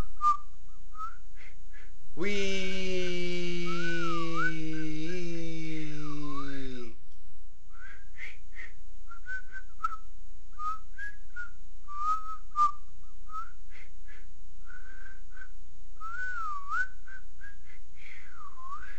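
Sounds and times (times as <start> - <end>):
person whistling a tune: 0.0 - 1.9, 7.7 - 10.0, 10.6 - 18.9.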